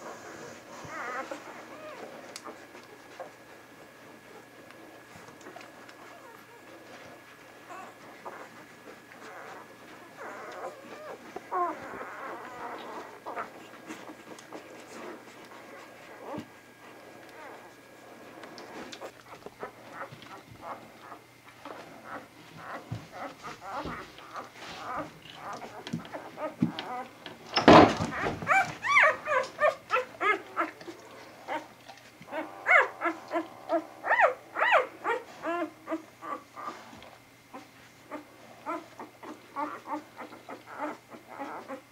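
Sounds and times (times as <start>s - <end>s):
puppies squeaking and whining: 0.0s - 41.9s.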